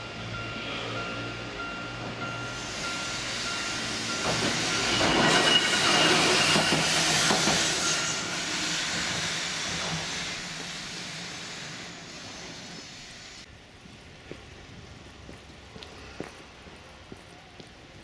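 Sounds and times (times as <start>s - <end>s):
crossing warning tone: 0.0s - 7.1s
tram wheels clattering on rails: 1.5s - 13.0s.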